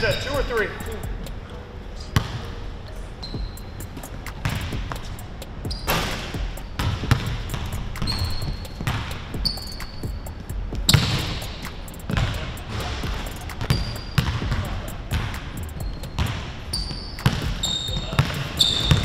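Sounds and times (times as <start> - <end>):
sneakers squeaking on floor: 0.0 - 19.0
basketball bouncing on hardwood floor: 4.3 - 5.1, 5.7 - 11.5, 12.1 - 19.0.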